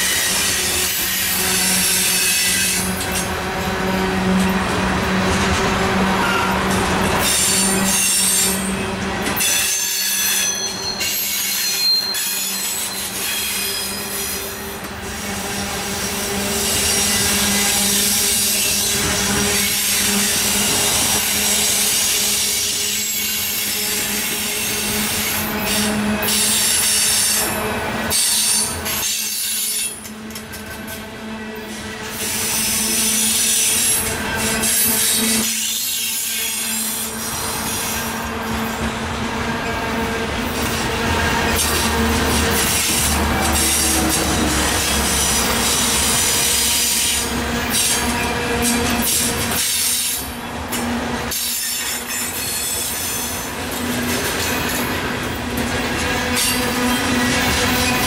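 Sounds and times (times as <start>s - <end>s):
train wheels rumbling on rails: 0.0s - 58.0s
high-pitched wheel squeal: 9.4s - 14.6s.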